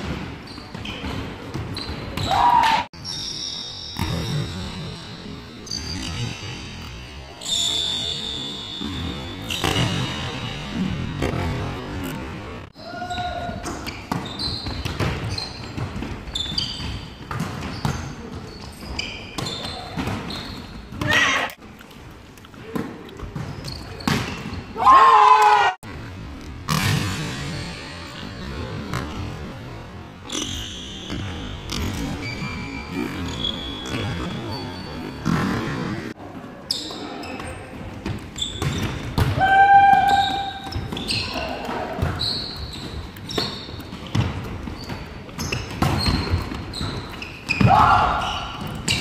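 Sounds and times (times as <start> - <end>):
shoes squeaking on wooden court: 0.0 - 24.8, 27.4 - 49.0
loud shout: 2.2 - 2.9, 12.8 - 13.6, 24.8 - 25.8, 39.3 - 40.6, 47.6 - 48.6
players' voices: 39.2 - 42.6.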